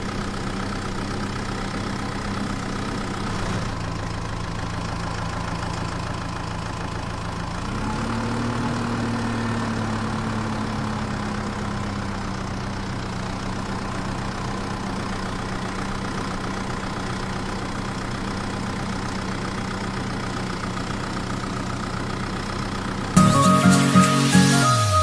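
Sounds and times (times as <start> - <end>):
engine idling: 0.0 - 7.8, 8.4 - 23.2
music with mallet notes: 23.2 - 25.0.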